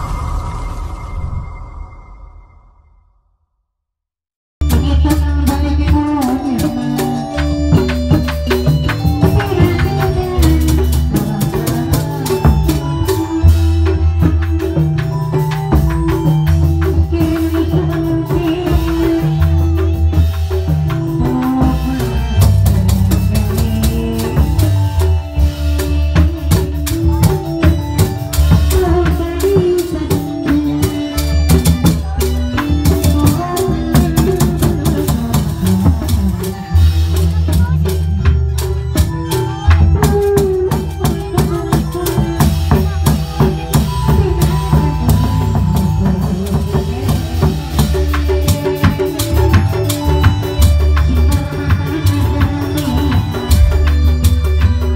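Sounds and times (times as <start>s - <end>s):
drums: 0.0s - 2.3s, 4.6s - 54.9s
rattling percussion: 4.6s - 54.9s
repeating melody: 4.6s - 54.9s
deep bass: 49.4s - 54.9s.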